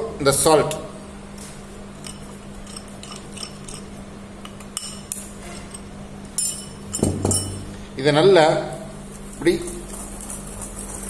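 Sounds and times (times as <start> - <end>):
metal spoon clinking on glass: 2.0 - 7.6.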